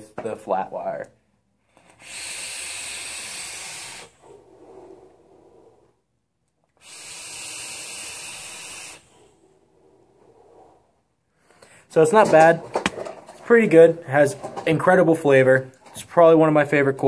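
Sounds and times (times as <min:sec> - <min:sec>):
breathy exhale: 0:01.6 - 0:06.1, 0:06.8 - 0:11.9
vape coil hissing: 0:01.8 - 0:05.0, 0:06.7 - 0:09.2.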